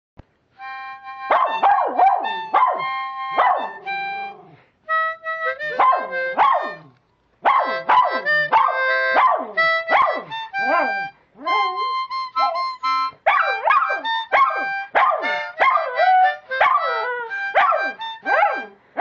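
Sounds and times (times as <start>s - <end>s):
harmonica chords: 0.4s - 19.0s
dog howling: 7.5s - 18.8s.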